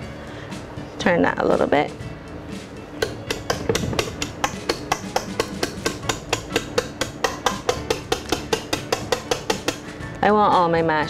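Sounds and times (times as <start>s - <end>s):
utensil knocking against bowl: 3.0s - 9.9s.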